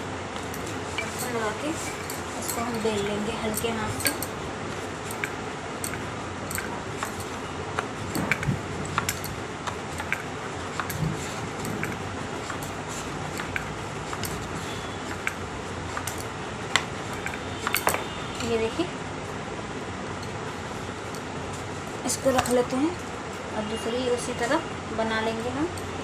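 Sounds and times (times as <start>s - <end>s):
rolling pin rolling dough: 0.0s - 18.6s
bangles clinking: 0.4s - 18.5s, 22.1s - 23.0s, 25.4s - 26.0s.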